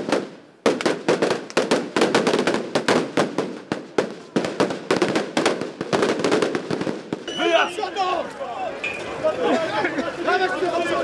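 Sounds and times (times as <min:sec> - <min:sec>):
firecrackers banging: 0:00.0 - 0:08.0.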